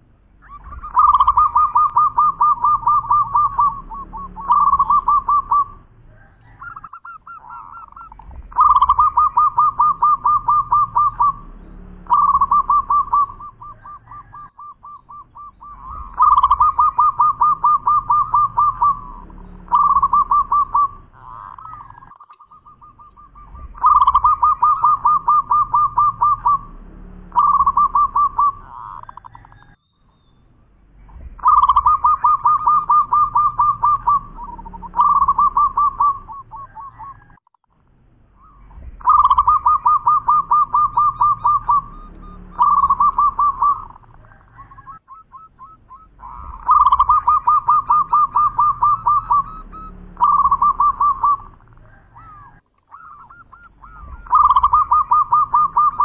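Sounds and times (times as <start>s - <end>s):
dove cooing: 0.0s - 29.8s, 31.1s - 37.4s, 38.4s - 56.0s.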